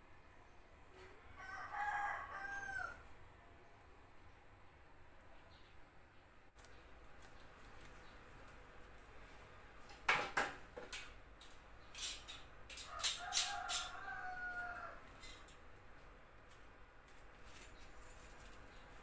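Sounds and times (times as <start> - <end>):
rooster crowing: 1.3 - 3.2, 12.8 - 15.3.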